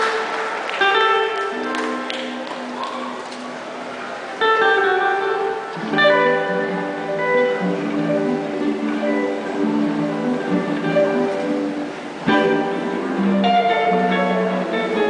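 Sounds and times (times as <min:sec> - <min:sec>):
electric guitar chords: 0:04.4 - 0:15.0.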